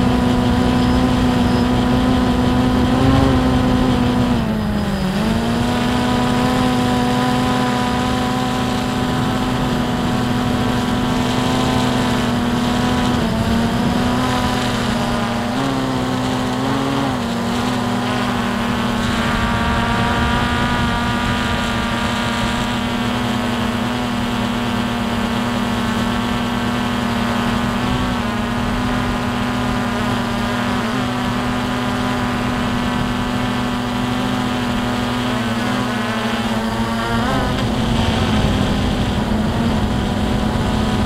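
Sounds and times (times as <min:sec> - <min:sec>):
drone motors whining: 0:00.0 - 0:41.0
wind rumble on microphone: 0:00.0 - 0:41.0.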